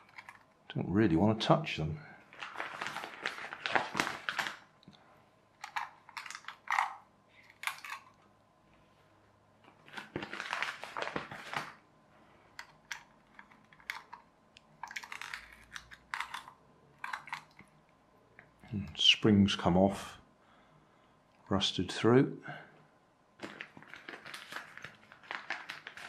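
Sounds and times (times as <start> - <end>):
plastic toy car clicks and scrapes: 14.8 - 17.6.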